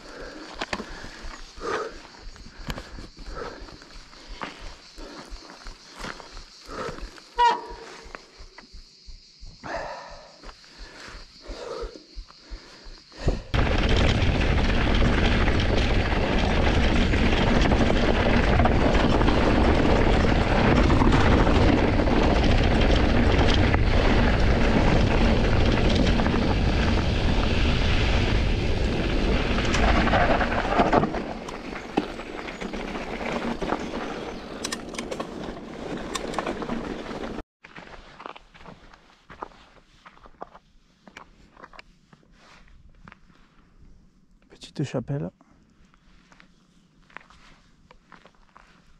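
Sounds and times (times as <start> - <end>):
wind buffeting microphone: 13.1 - 37.3.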